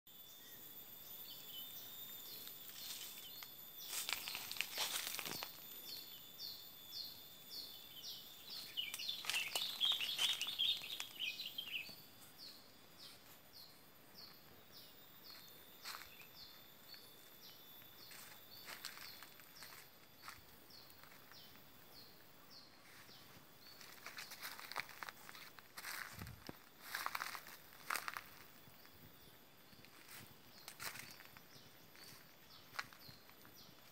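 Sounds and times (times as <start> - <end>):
high insect tones: 0.1 - 33.9
rustling footsteps: 2.4 - 5.6, 8.5 - 12.4, 18.0 - 21.7, 22.8 - 33.9
bird chatter: 8.6 - 12.0.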